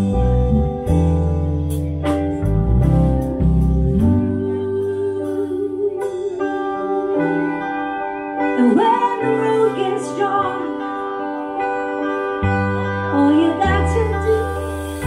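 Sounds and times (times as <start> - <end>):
electric guitar: 0.0 - 15.0
keyboard chords: 0.0 - 15.0
woman singing: 3.8 - 12.0, 12.7 - 15.0.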